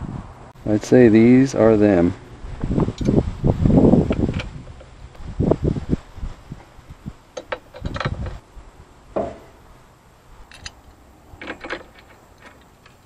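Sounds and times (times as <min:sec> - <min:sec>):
loud knock: 0:09.2 - 0:09.6
metal parts clinking: 0:10.5 - 0:13.0.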